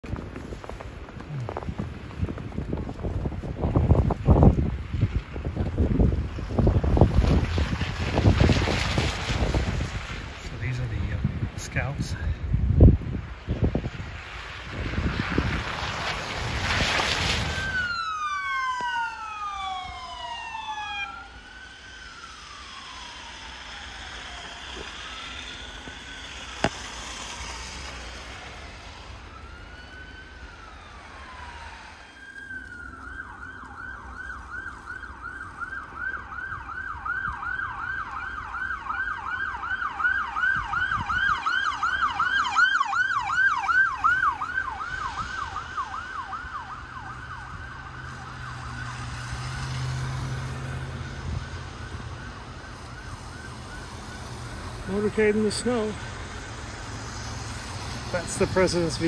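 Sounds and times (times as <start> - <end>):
vehicle passing with engine hum: 12.9 - 59.0
police siren wailing and yelping: 17.2 - 59.0.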